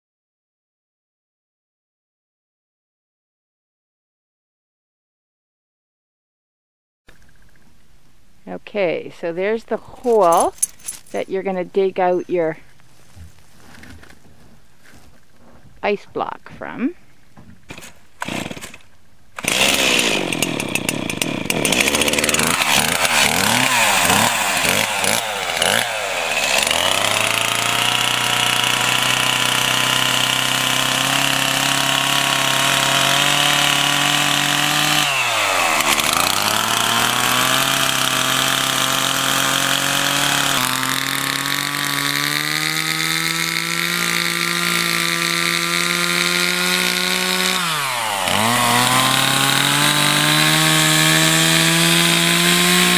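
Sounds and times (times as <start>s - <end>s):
chainsaw revving and cutting ice: 17.7s - 18.8s, 19.4s - 52.9s.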